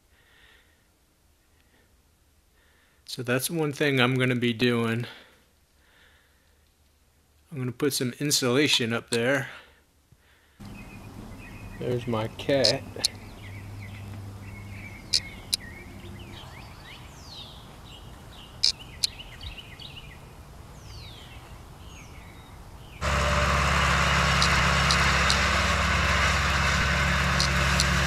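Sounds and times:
loud steady mechanical hum: 0:10.6 - 0:15.7, 0:23.0 - 0:28.0
birds chirping: 0:10.6 - 0:28.0
faint ticks: 0:12.6 - 0:13.2
small sharp camera clicks: 0:24.3 - 0:25.5.

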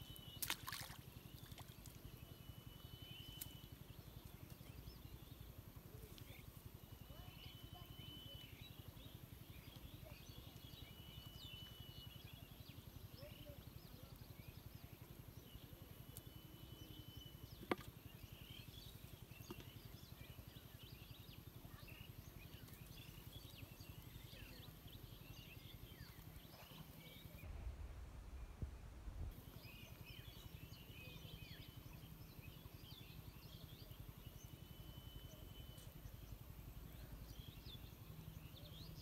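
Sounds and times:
small birds chirping: 0:00.0 - 0:27.5, 0:29.4 - 0:39.0
low rumble on microphone: 0:21.7 - 0:30.8.

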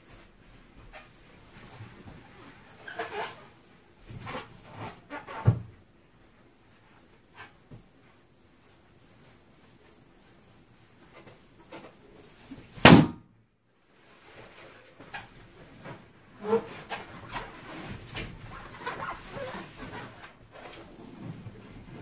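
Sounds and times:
latex squeaking and rubbing: 0:02.4 - 0:05.7, 0:16.4 - 0:22.0
balloon bursting bang: 0:12.8 - 0:13.3.

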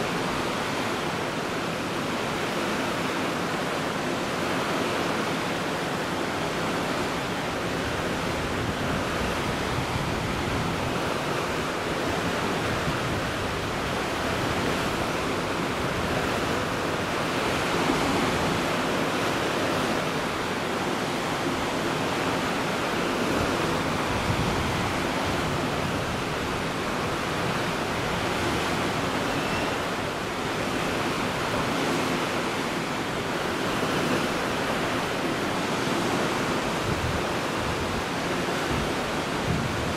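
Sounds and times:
sea rushing: 0:00.0 - 0:39.9
waves washing: 0:00.0 - 0:39.9
wind: 0:00.0 - 0:39.9.

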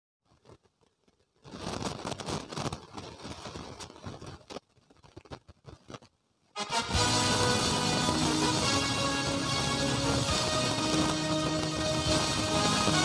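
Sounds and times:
rustling handling noise: 0:00.2 - 0:06.5.

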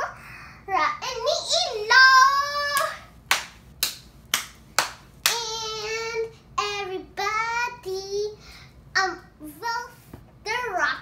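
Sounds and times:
girl clapping hands: 0:02.8 - 0:05.4.

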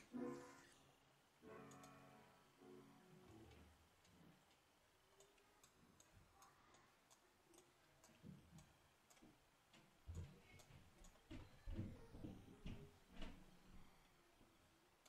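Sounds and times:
faint clicks: 0:01.6 - 0:02.0, 0:03.5 - 0:13.4.

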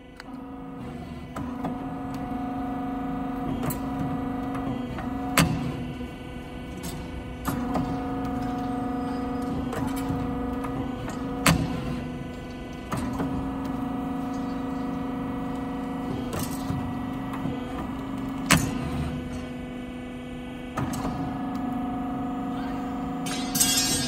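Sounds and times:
machine motor hum and whine: 0:00.0 - 0:24.0
sharp metallic clanks: 0:23.2 - 0:24.0.

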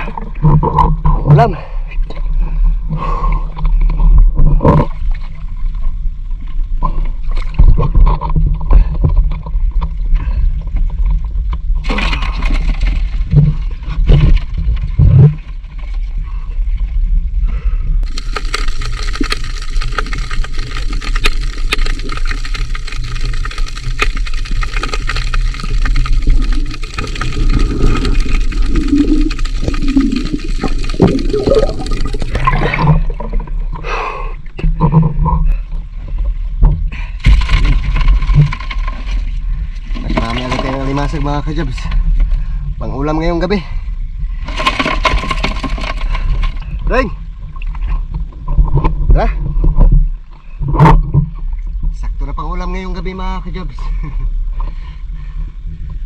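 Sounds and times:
water sloshing and splashing: 0:03.5 - 0:17.1, 0:18.0 - 0:33.9, 0:34.5 - 0:42.6, 0:44.2 - 0:52.0.

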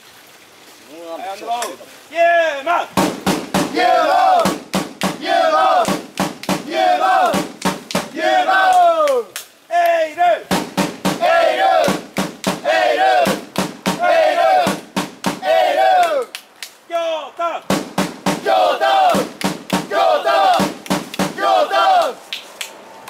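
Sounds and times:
drum beats: 0:03.0 - 0:09.3, 0:10.5 - 0:16.3, 0:17.7 - 0:22.2
crowd chanting in unison: 0:03.7 - 0:06.0, 0:06.6 - 0:09.1, 0:11.2 - 0:16.3, 0:18.4 - 0:22.2.

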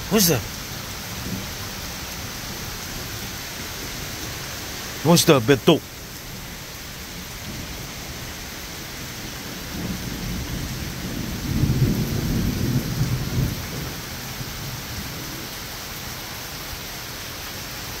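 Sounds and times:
heavy rain on deck and pavement: 0:00.0 - 0:18.0
rolling thunder: 0:07.2 - 0:15.5.

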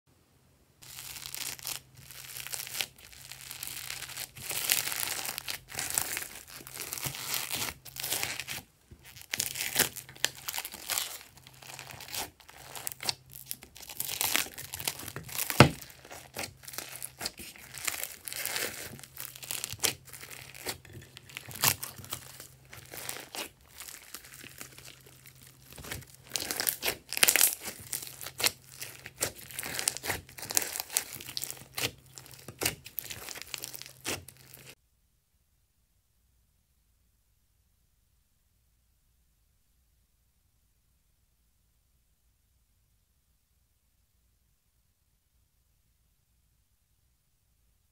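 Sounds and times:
foam beads crunching in slime: 0:00.8 - 0:34.8.

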